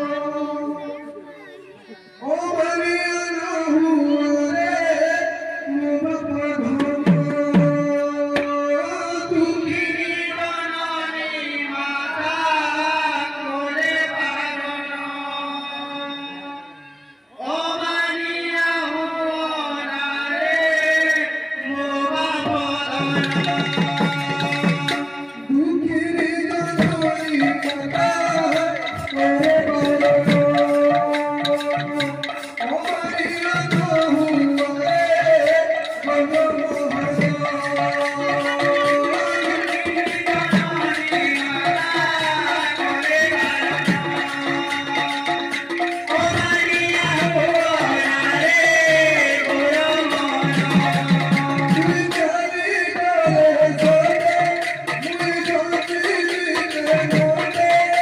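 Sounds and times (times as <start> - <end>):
man singing devotional melody: 0.0 - 58.0
sharp percussion strokes: 20.8 - 58.0
hand drum: 22.4 - 52.4.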